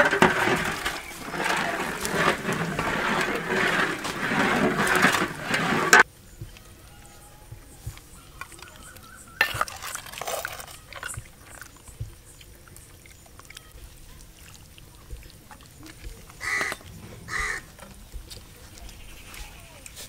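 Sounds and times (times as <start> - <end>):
ladle clattering: 0.0 - 6.0, 8.4 - 12.0
ladle scraping pot: 0.0 - 6.0, 9.4 - 11.8
crow cawing: 16.4 - 17.7.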